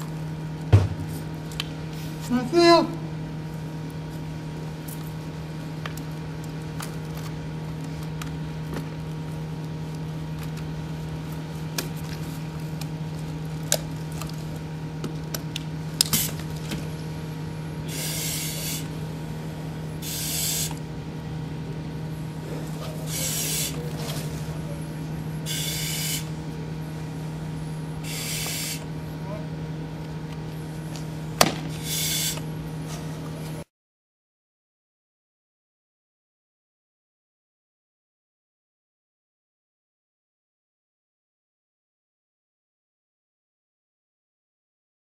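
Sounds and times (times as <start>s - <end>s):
steady low hum: 0.0s - 33.7s.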